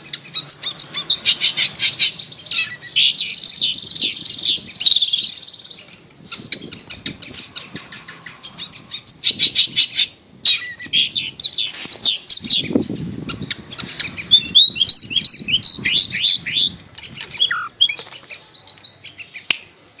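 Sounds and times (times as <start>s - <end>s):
bird whistles: 13.9s - 16.7s, 17.3s - 18.0s
shrike singing chattering notes: 14.0s - 18.1s.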